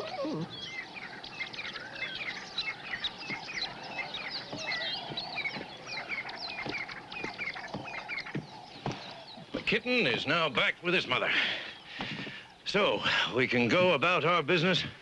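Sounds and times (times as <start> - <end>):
birds chirping: 0.0 - 15.0
faint knocks: 4.4 - 9.8.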